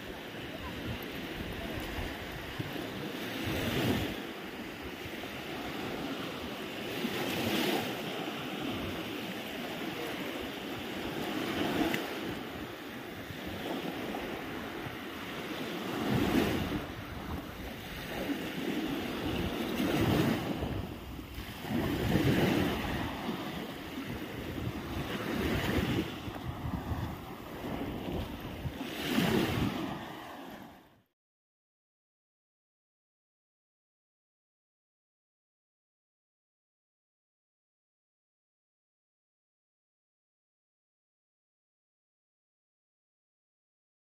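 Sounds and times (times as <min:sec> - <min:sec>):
waves washing up a beach: 0:00.0 - 0:31.1
wind buffeting microphone: 0:08.1 - 0:30.3.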